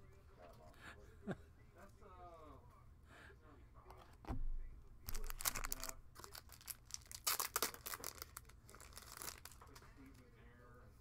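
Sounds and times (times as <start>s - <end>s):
plastic wrappers crinkling and tearing: 5.1s - 10.3s.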